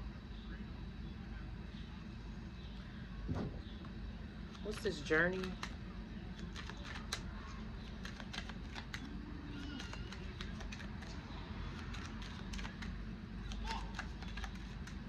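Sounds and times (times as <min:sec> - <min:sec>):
cards shuffling: 0:06.3 - 0:15.0.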